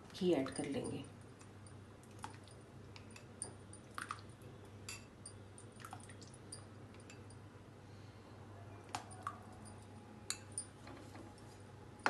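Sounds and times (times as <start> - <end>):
low steady hum: 0.0 - 12.0
spoon clinking in glass bowl: 9.1 - 10.8.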